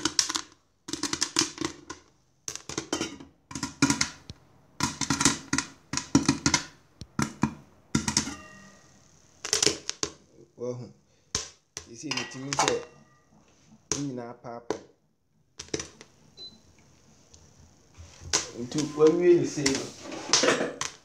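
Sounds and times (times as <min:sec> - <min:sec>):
popcorn popping in a pot: 0:00.0 - 0:10.4, 0:11.3 - 0:13.2, 0:13.8 - 0:16.2
metallic ring from pot: 0:08.3 - 0:09.0, 0:12.1 - 0:13.4.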